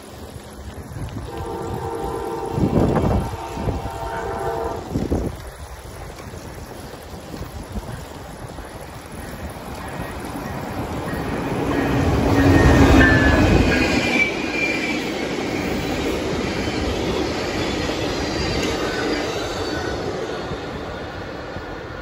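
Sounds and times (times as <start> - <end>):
locomotive rumble: 0.0 - 22.0
train wheels rumbling on rail: 0.0 - 22.0
high wheel squeals: 10.4 - 20.2.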